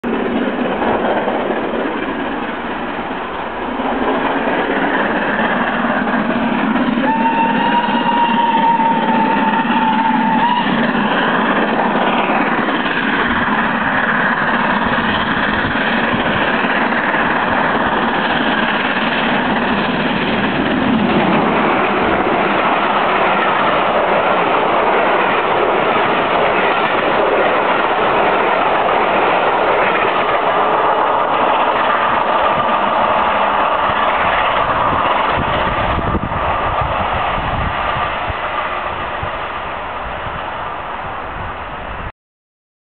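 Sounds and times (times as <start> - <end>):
steam locomotive passing: 0.0 - 42.1
steam whistle: 7.0 - 11.0.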